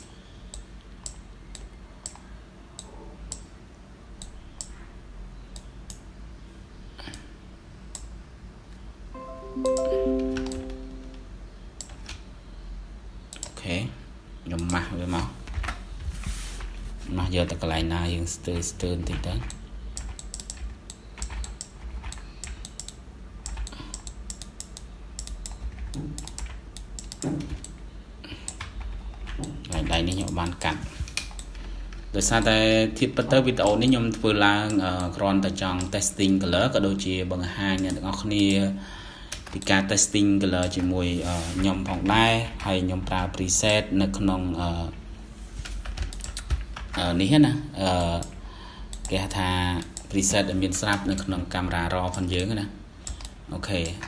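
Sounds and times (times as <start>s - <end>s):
computer mouse clicking: 0.0s - 3.5s, 4.2s - 4.8s, 7.9s - 8.1s, 11.8s - 12.2s, 13.3s - 13.6s, 18.5s - 27.8s, 28.5s - 32.0s, 45.6s - 47.0s, 48.2s - 49.1s, 52.1s - 54.0s
faint steady low hum: 0.0s - 54.0s.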